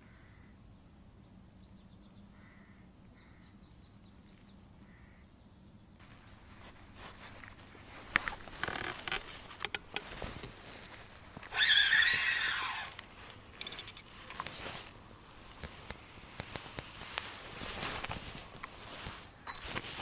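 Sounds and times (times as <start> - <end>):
fishing tackle clicks and scrapes: 8.1 - 10.6, 12.9 - 15.0.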